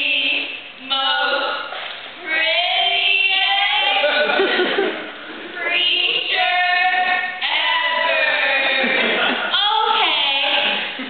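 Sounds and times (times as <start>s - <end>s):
women singing long notes in unison: 5.6s - 10.8s.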